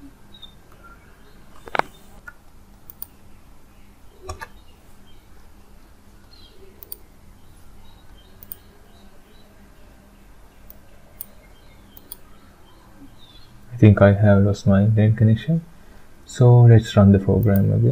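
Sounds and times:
faint low hum: 0.0s - 17.9s
computer mouse clicks: 1.6s - 3.1s, 4.2s - 4.6s, 6.2s - 7.1s, 8.4s - 8.7s, 10.6s - 12.3s.

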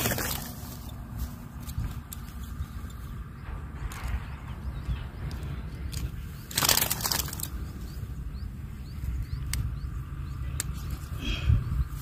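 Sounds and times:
wind rumbling on microphone: 0.0s - 12.0s
water splashing and rustling: 6.4s - 7.6s
sharp clicks: 9.3s - 9.8s.

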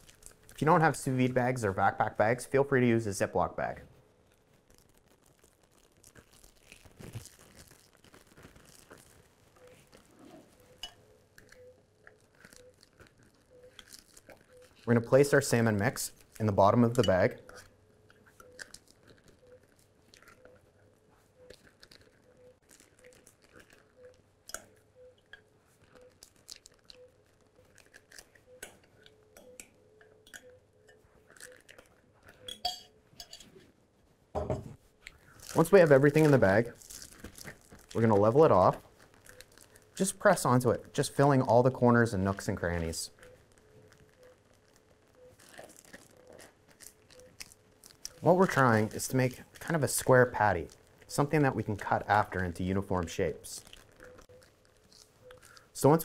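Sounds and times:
plastic bag crinkling: 0.0s - 29.6s, 30.2s - 32.5s, 35.0s - 56.0s
wet squishing and scraping: 4.0s - 32.5s, 35.0s - 56.0s
spoon clattering: 10.8s - 11.0s, 32.4s - 33.5s
spoon clinking against glass: 10.8s - 11.0s, 32.5s - 33.5s.

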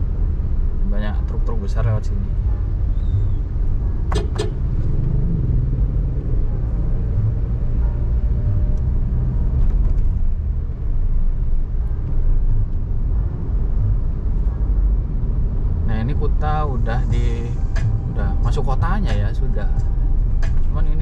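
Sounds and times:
car engine rumble: 0.0s - 21.0s
road noise: 0.0s - 21.0s.

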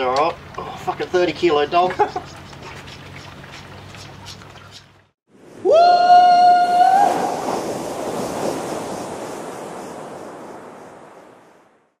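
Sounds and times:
rushing surf-like wash: 5.3s - 11.8s.

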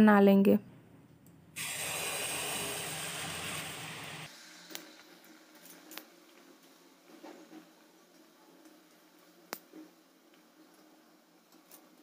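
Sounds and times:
batter sizzling in hot oil: 1.6s - 8.1s.

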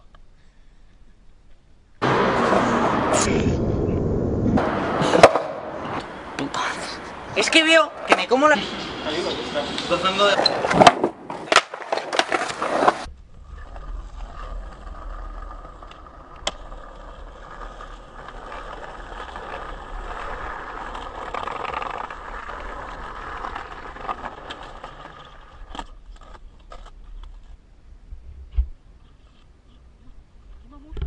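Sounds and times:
skateboard wheels rolling on concrete: 1.0s - 31.0s
skateboard clacks: 4.6s - 6.1s, 10.4s - 13.1s.

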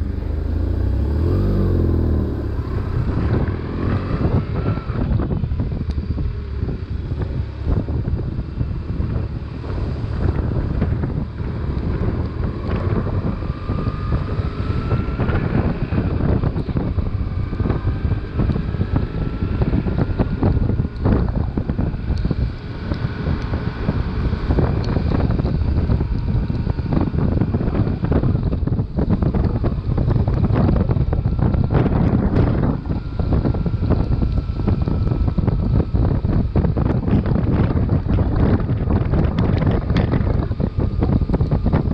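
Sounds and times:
motorcycle engine running: 0.0s - 41.9s
wind noise on microphone: 0.0s - 41.9s.

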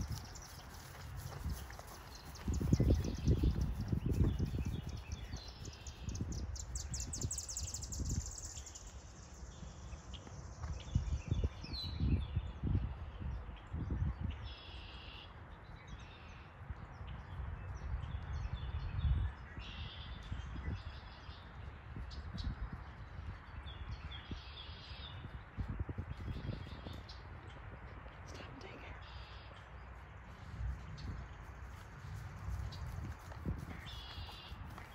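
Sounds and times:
horse hooves on grass: 0.0s - 7.2s, 8.2s - 11.7s, 20.7s - 34.9s
songbirds chirping: 0.0s - 34.9s.

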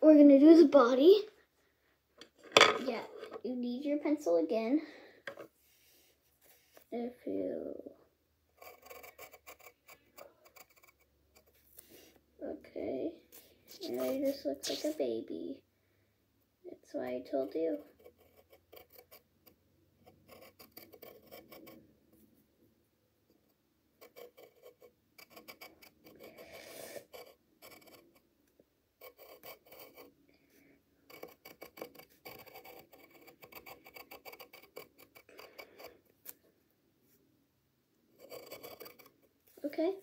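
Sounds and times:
faint pencil scratching on paper: 5.6s - 6.9s, 8.5s - 12.2s, 13.3s - 15.1s, 17.0s - 22.2s, 23.4s - 28.3s, 29.0s - 36.4s, 38.2s - 40.0s.

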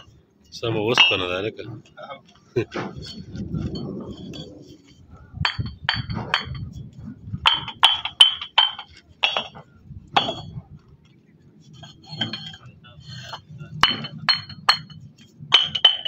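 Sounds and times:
bricks clinking together: 7.4s - 10.6s, 11.7s - 16.0s.

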